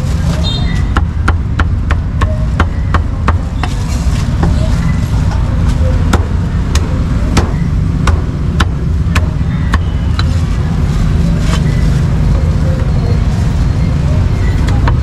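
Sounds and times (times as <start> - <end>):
low rumble of road traffic: 0.0 - 15.0
cleaver chopping on wooden block: 6.1 - 9.9.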